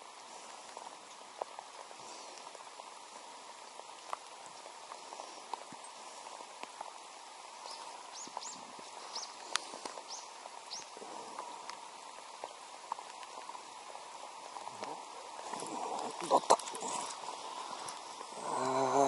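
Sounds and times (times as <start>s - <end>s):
rain pattering on water and boat: 0.0s - 19.0s
drip ticks: 3.6s - 7.1s
bird chirps: 7.6s - 9.4s.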